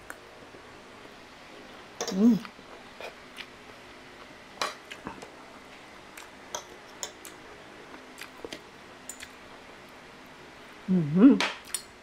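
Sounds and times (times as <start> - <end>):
cutlery clicking on ceramic plate: 2.0 - 2.2.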